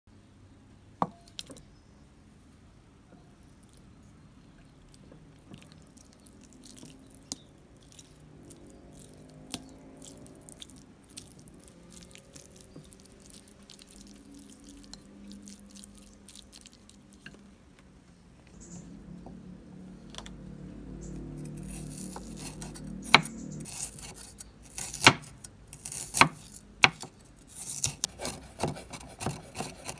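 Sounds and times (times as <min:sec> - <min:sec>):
tofu squishing and crumbling: 0:04.5 - 0:17.6.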